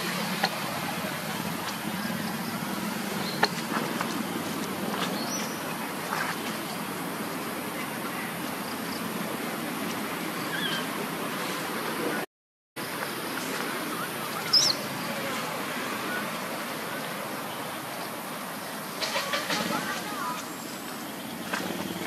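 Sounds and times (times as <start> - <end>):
outdoor background noise: 0.0 - 22.0
faint high chirps: 13.4 - 15.3.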